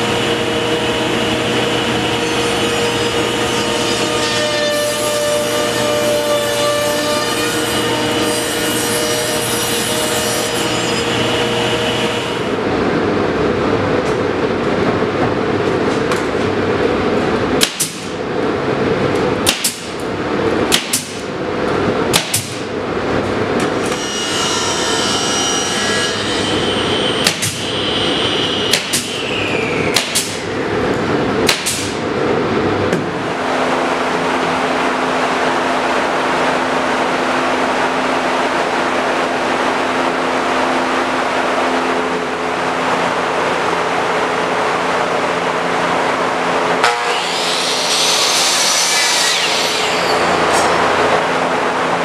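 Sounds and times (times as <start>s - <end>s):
steady machine noise: 0.0s - 8.2s, 11.0s - 52.0s
table saw cutting wood: 0.0s - 12.5s, 23.8s - 29.5s, 46.8s - 51.2s
nail gun firing: 17.6s - 18.2s, 19.4s - 20.0s, 20.7s - 21.2s, 22.1s - 22.6s, 27.2s - 27.6s, 30.0s - 30.4s, 31.5s - 32.0s.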